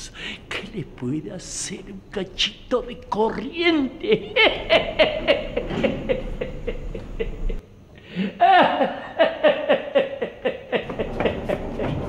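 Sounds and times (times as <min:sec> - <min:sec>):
man laughing: 0:03.5 - 0:07.6, 0:08.3 - 0:12.0.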